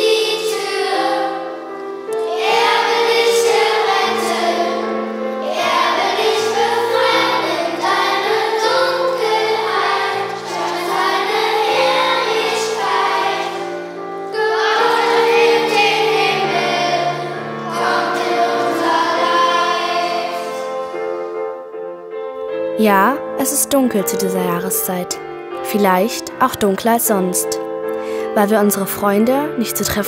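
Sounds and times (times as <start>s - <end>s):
children's choir singing: 0.0s - 21.7s
piano: 0.0s - 30.0s.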